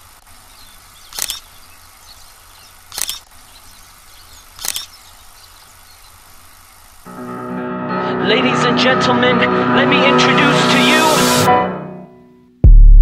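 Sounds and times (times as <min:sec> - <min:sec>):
insects buzzing: 0:00.0 - 0:07.1
camera shutter clicks: 0:01.1 - 0:01.6, 0:02.9 - 0:03.4, 0:04.5 - 0:05.0.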